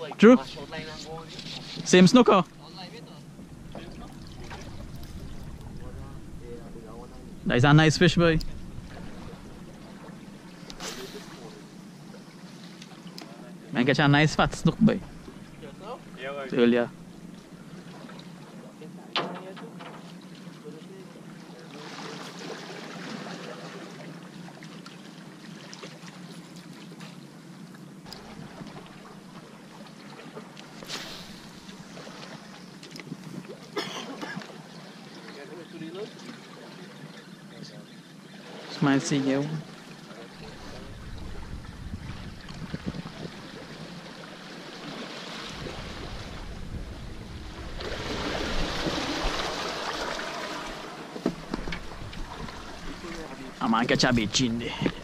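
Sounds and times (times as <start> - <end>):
water lapping against steel: 0.0 - 55.0
low hum: 0.1 - 13.0, 45.4 - 55.0
wind on microphone: 3.4 - 9.9, 40.4 - 44.0, 45.4 - 49.8
fishing rod cast whoosh: 30.8 - 31.7.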